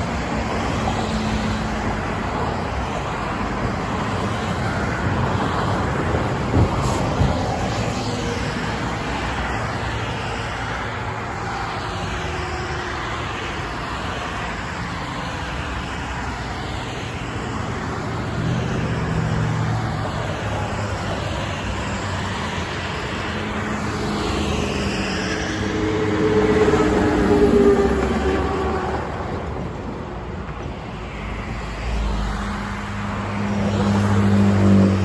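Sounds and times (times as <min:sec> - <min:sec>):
highway traffic passing: 0:00.0 - 0:35.0
truck engine drone: 0:05.0 - 0:35.0.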